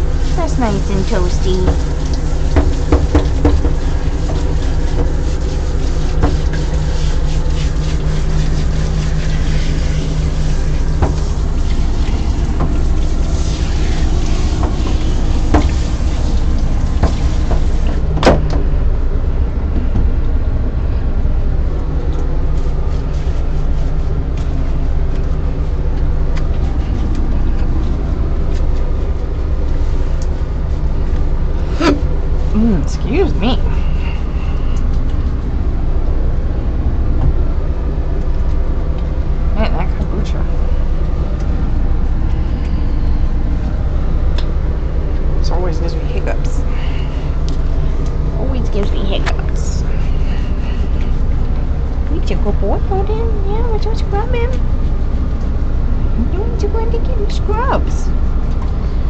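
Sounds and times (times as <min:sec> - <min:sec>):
water spraying from nozzle: 0:00.0 - 0:18.1
low motor hum: 0:00.0 - 0:59.0.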